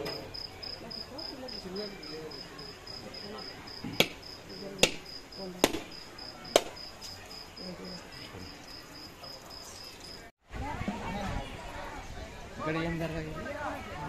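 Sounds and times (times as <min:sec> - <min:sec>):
cricket chirping: 0:00.0 - 0:10.3
sharp knocks: 0:03.8 - 0:04.2, 0:05.6 - 0:06.8.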